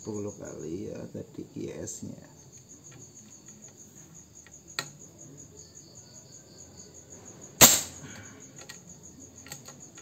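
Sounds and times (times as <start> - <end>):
crickets chirping: 0.0 - 10.0
suppressed air rifle shot: 7.6 - 8.0.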